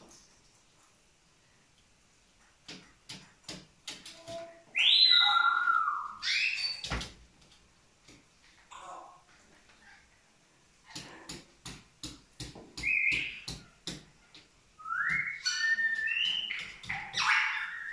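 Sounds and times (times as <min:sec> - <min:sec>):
cockatoo whistling: 0:14.8 - 0:17.9.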